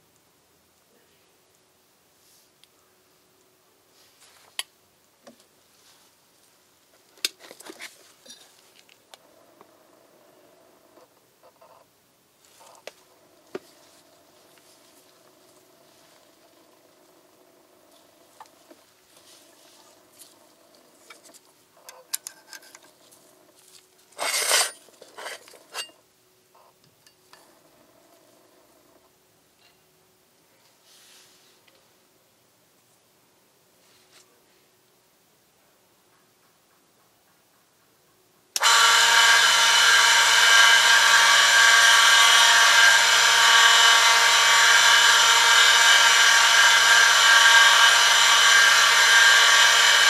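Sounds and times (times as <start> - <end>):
faint steady hum: 0.0 - 50.0
metal scrape: 24.1 - 26.0.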